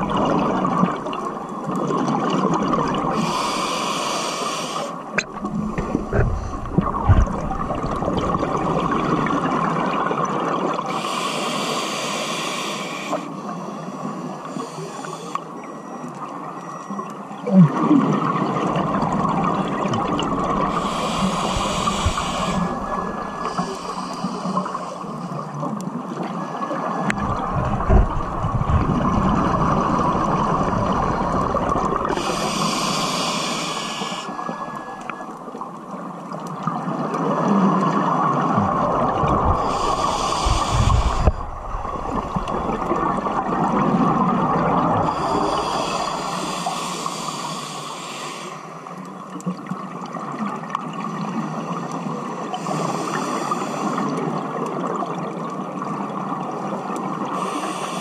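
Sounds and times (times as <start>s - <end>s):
exhaled bubbles rumbling: 0.0s - 3.3s, 5.2s - 10.9s, 17.4s - 24.3s, 27.0s - 32.4s, 36.6s - 46.4s
underwater noise: 0.0s - 58.0s
scuba regulator hissing inhale: 3.2s - 5.0s, 10.9s - 15.4s, 20.4s - 25.5s, 30.9s - 35.0s, 39.5s - 43.4s, 45.0s - 48.9s, 52.5s - 54.3s, 57.3s - 58.0s.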